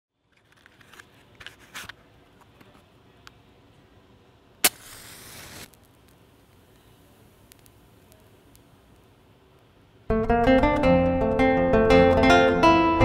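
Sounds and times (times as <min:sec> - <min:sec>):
matchbox scraping and clicking: 0:04.6 - 0:06.2
match striking and flaring: 0:04.6 - 0:08.7.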